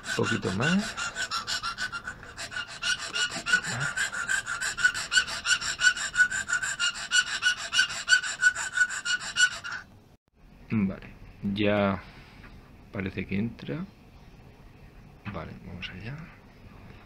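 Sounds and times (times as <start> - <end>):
file rasping back and forth: 0.0 - 9.9.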